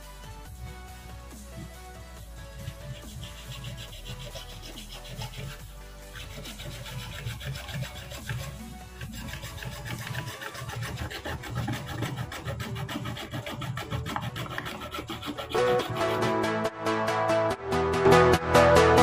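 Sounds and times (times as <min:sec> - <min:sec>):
background music: 0:00.0 - 0:19.0
hacksaw rasping through plastic: 0:02.5 - 0:16.3.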